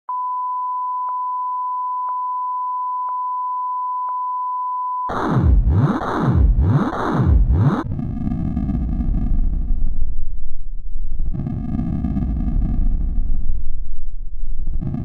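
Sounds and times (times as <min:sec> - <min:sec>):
steady test tone: 0:05.1 - 0:07.8
synthesized sweeping whooshes: 0:05.1 - 0:08.7.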